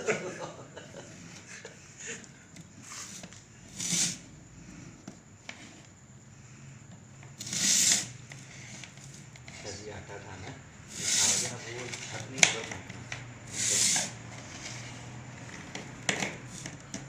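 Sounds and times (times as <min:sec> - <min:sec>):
short hissing noises: 0:02.8 - 0:04.9, 0:07.4 - 0:09.6, 0:10.8 - 0:11.7, 0:13.4 - 0:15.1.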